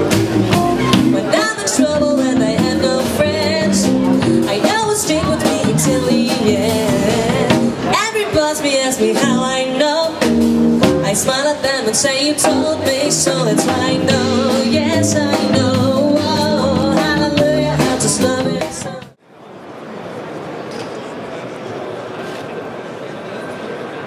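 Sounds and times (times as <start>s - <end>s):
loud backing music: 0.0s - 8.1s, 9.2s - 19.2s
woman singing through loudspeaker: 1.0s - 19.2s.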